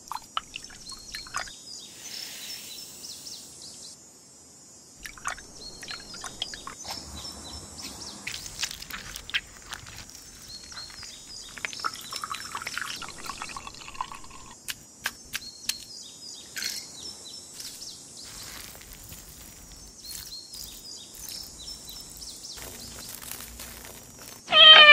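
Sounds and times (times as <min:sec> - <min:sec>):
liquid squishing and dripping: 0:00.0 - 0:01.5, 0:05.0 - 0:07.2, 0:07.8 - 0:14.8
bird chirps: 0:00.4 - 0:03.9, 0:05.0 - 0:12.6.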